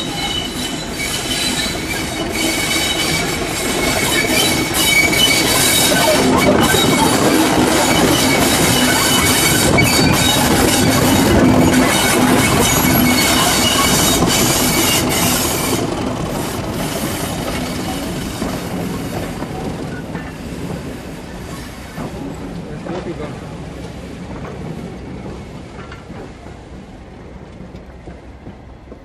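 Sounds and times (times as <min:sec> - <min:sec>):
wheel squeal: 0:00.0 - 0:15.8
diesel locomotive engine: 0:00.0 - 0:29.0
train wheels on track: 0:00.0 - 0:29.0.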